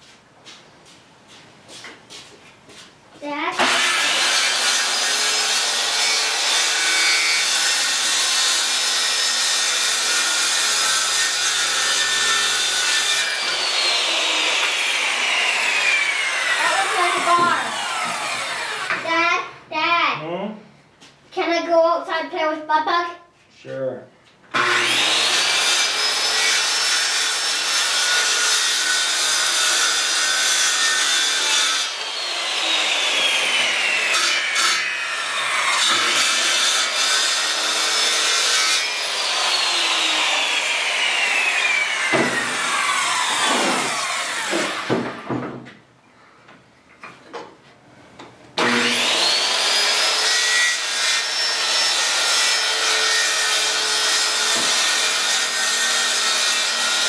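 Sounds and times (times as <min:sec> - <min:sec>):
circular saw cutting wood: 0:03.5 - 0:19.1, 0:24.5 - 0:45.2, 0:48.6 - 0:57.0.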